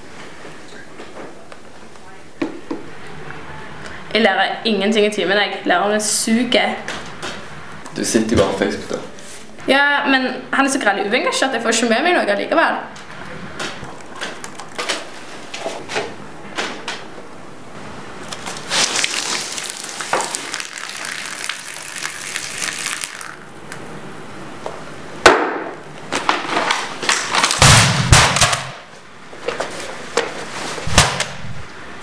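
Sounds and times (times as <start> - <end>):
liquid pouring and splashing: 18.3 - 23.6
laptop cracking and crashing: 26.2 - 28.7.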